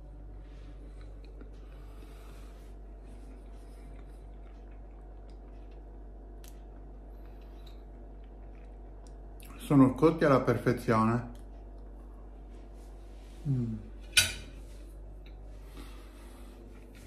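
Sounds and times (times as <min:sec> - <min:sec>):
low hum: 0:00.0 - 0:17.0
person chewing: 0:00.8 - 0:09.6.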